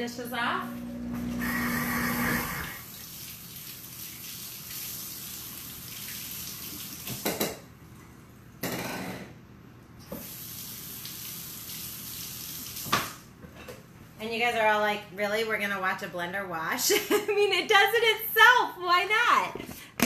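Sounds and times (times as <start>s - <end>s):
tap running into a sink: 12.8s - 13.2s.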